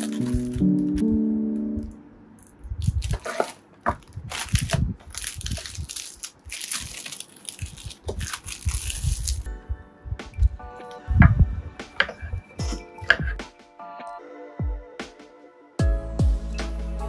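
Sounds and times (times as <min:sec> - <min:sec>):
plastic wrap crinkling: 0:00.0 - 0:01.1, 0:02.4 - 0:09.5
background music: 0:00.0 - 0:02.5, 0:09.2 - 0:17.0.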